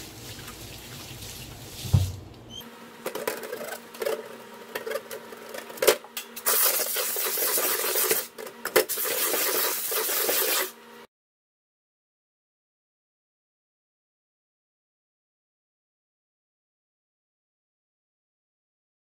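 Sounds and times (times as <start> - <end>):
scrubbing plastic parts: 3.1 - 10.7.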